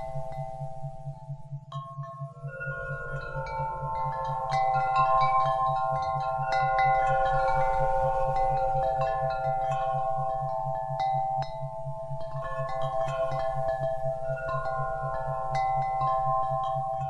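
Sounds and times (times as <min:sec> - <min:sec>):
wind chimes ringing: 0:00.0 - 0:17.0.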